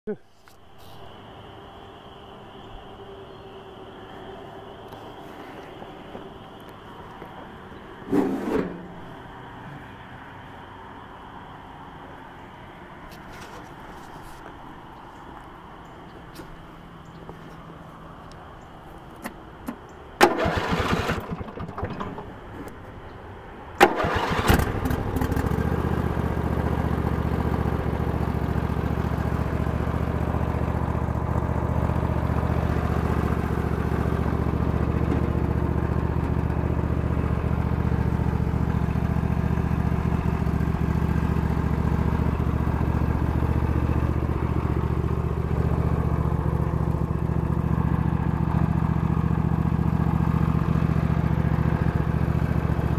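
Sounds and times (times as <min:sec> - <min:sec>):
riding mower engine running: 0:13.3 - 0:52.9
engine starter cranking: 0:19.7 - 0:22.6, 0:23.8 - 0:25.4.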